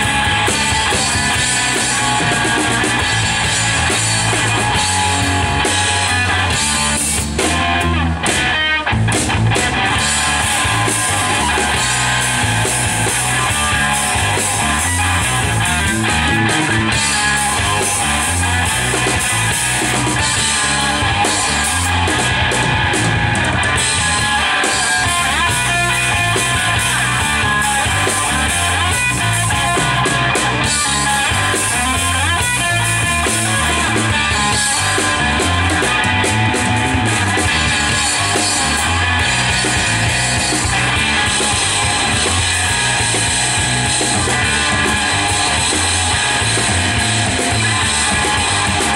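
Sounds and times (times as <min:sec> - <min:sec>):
drum kit: 0:00.0 - 0:48.9
electric bass: 0:00.0 - 0:48.9
electric guitar: 0:00.0 - 0:48.9.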